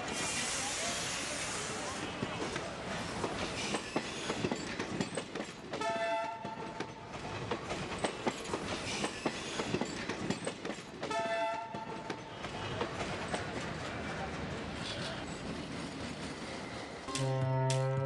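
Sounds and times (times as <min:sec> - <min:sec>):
train wheels clattering over rails: 0:02.1 - 0:17.0
train horn: 0:05.8 - 0:06.5, 0:11.1 - 0:11.9, 0:17.1 - 0:18.0.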